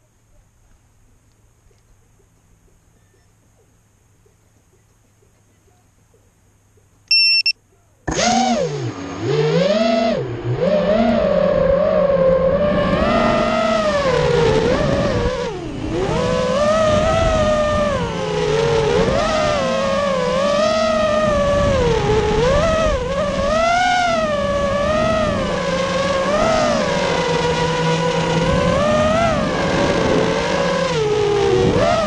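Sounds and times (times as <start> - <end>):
quadcopter motors whining: 7.1 - 32.0.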